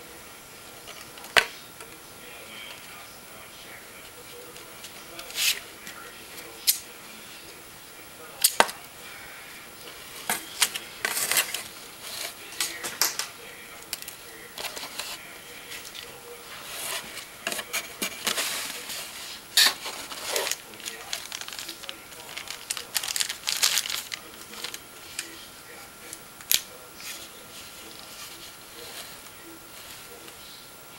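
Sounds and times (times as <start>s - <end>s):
plastic and cardboard rustling: 0.7s - 7.6s, 9.8s - 25.8s.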